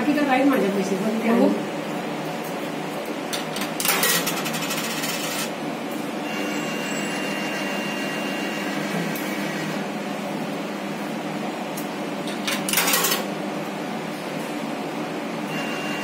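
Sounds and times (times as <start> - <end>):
vending machine whine: 0.0 - 16.0
vending machine clicks: 12.3 - 13.3.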